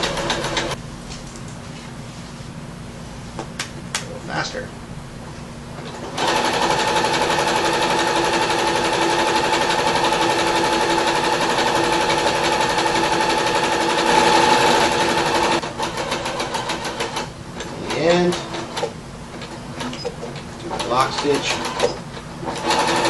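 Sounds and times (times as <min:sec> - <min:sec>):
sewing machine stitching: 0:00.0 - 0:00.8, 0:05.9 - 0:23.0.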